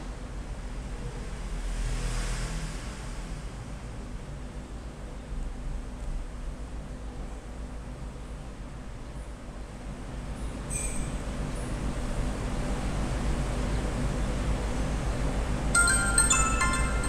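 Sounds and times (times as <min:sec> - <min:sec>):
phone ringtone chiming: 0:15.7 - 0:17.0.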